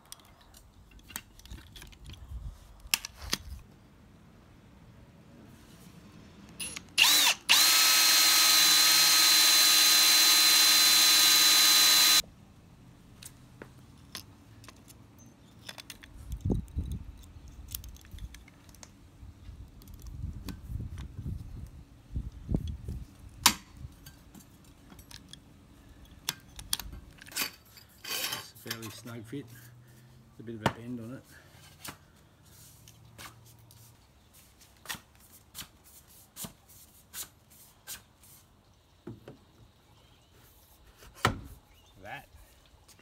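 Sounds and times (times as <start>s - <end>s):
cordless drill drilling steel: 6.6s - 12.2s.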